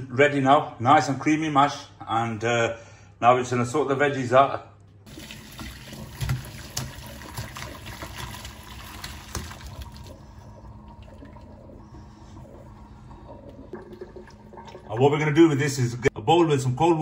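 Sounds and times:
water draining: 5.0s - 16.1s
water pouring into sink: 5.1s - 16.0s.

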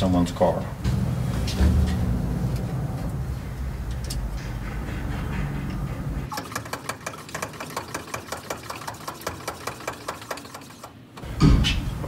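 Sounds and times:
low rumble: 0.8s - 6.3s
hand pump clicking: 6.3s - 11.3s.

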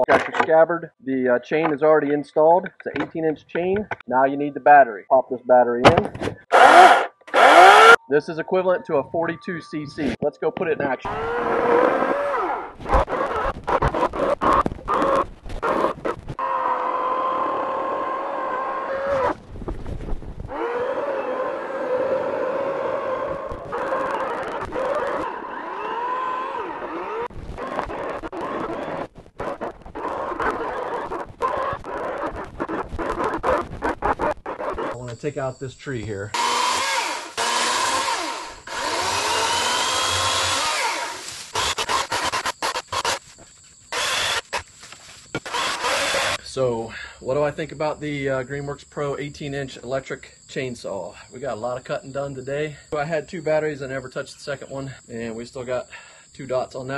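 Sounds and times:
chainsaw cutting log: 6.5s - 8.0s, 11.1s - 19.2s, 23.7s - 29.0s, 36.4s - 43.3s, 43.9s - 44.6s, 45.3s - 46.4s.

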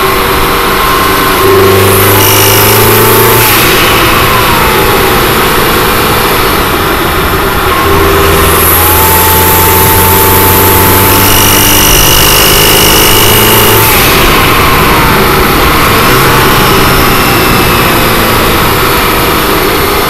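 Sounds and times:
car engine pulling under load: 0.0s - 20.0s
higher whine tone: 0.0s - 20.0s
thin high whine: 0.0s - 20.0s.

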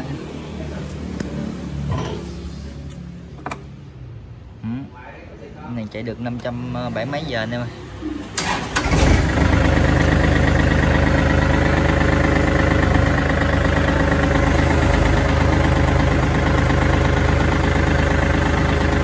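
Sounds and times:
tractor diesel engine idling: 8.4s - 19.0s.

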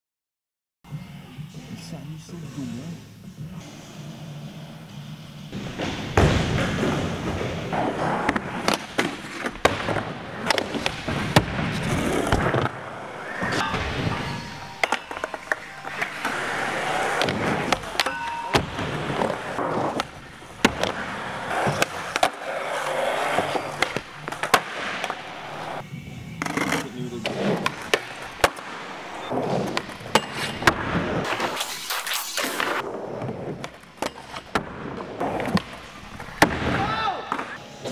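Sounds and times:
skateboard wheels rolling on concrete: 5.5s - 13.6s, 18.7s - 37.9s.

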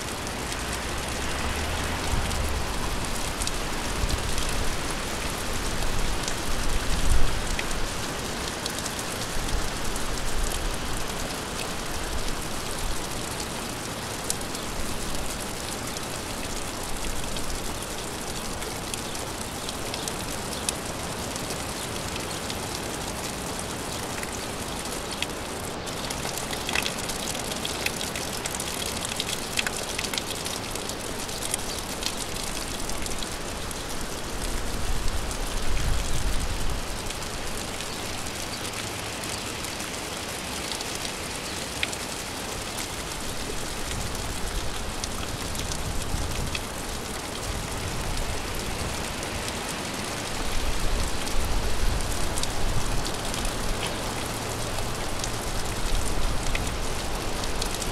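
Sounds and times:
gentle rain hiss: 0.0s - 57.9s
raindrops ticking on surface: 0.0s - 57.9s.

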